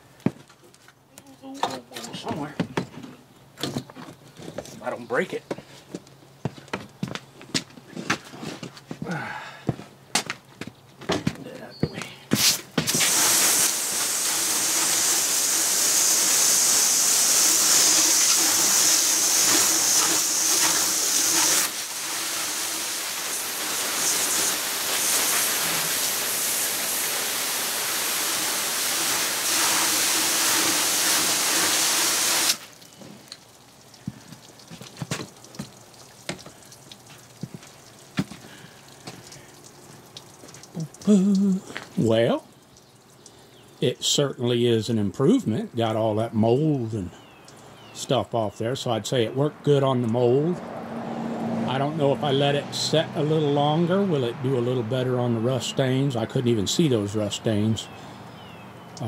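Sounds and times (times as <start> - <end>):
hose nozzle spraying water: 12.3 - 43.3
water dripping: 27.4 - 43.9, 46.6 - 48.0, 58.0 - 59.0.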